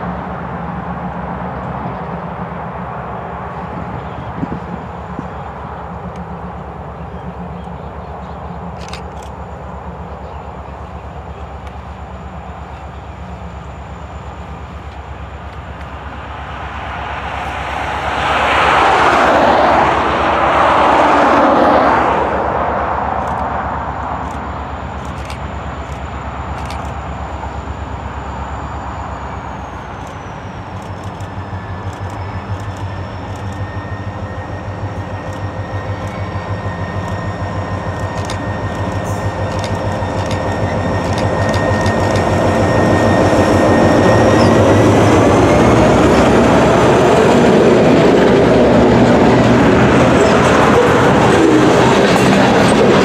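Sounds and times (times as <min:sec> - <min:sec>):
diesel locomotive engine throb: 0:00.0 - 0:53.0
rushing sound: 0:14.6 - 0:30.7
train wheels clicking: 0:23.0 - 0:27.1, 0:29.4 - 0:53.0.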